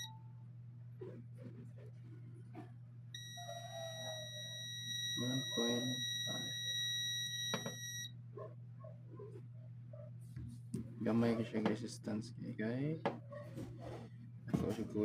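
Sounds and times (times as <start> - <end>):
multimeter continuity beep: 0.0 - 0.2, 3.2 - 8.2.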